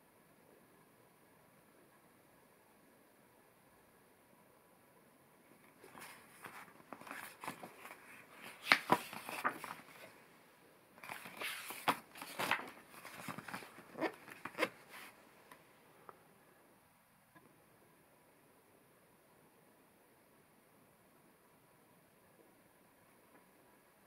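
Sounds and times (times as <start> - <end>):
paper pages rustling: 5.7 - 10.1, 11.0 - 15.2
paper crackles: 5.8 - 10.1, 11.0 - 15.2.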